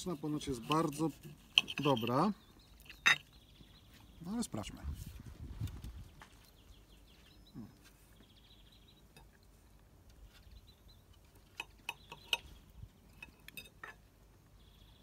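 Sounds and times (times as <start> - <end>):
cutlery clinking on a plate: 13.2 - 14.0.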